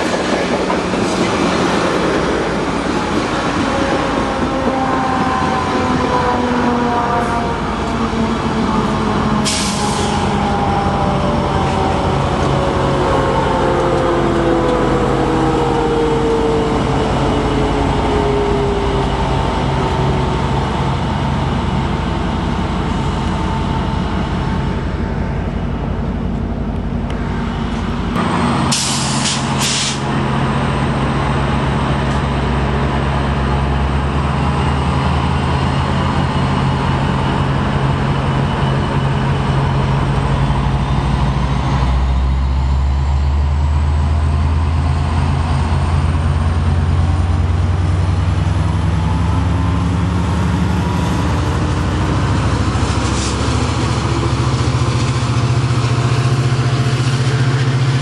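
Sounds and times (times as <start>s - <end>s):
locomotive diesel engine drone: 0.0s - 58.0s
air brake hisses: 9.4s - 10.3s, 28.7s - 30.1s.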